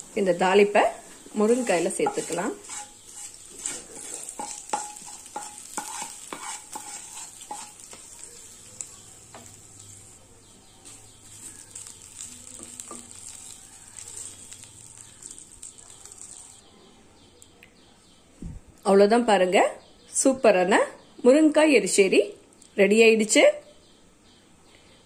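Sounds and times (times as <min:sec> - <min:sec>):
oil sizzling: 0:00.0 - 0:16.6
stirring in a pan: 0:00.0 - 0:16.6
spatula scraping a pan: 0:00.3 - 0:08.7, 0:10.8 - 0:16.6.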